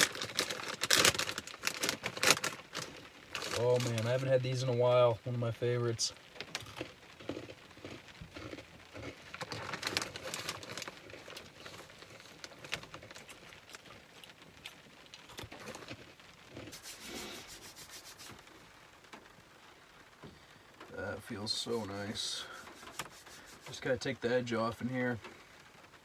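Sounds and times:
pretzels crunching: 0.0s - 4.4s, 6.4s - 18.6s
plastic snack bag crinkling: 0.0s - 5.0s, 6.3s - 18.6s.

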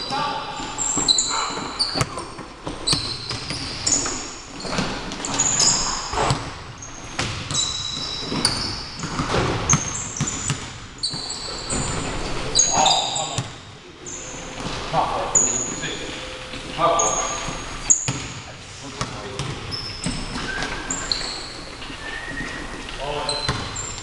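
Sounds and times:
sneakers squealing on gym floor: 0.0s - 24.0s
basketball bouncing: 0.9s - 12.2s, 12.9s - 13.6s, 18.0s - 18.4s, 19.0s - 20.8s, 23.3s - 24.0s.

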